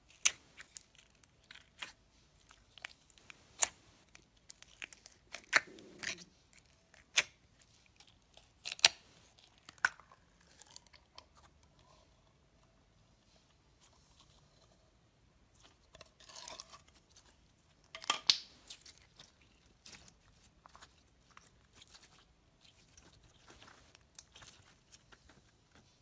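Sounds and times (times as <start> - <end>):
slime popping and crackling: 0.0 - 2.0
slime squish: 0.0 - 12.1, 15.5 - 25.9.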